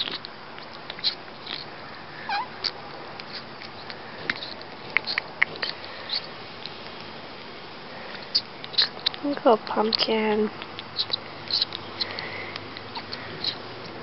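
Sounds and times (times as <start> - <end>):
kitten sucking on bottle nipple: 0.0 - 14.0
kitten mewing: 0.9 - 3.5.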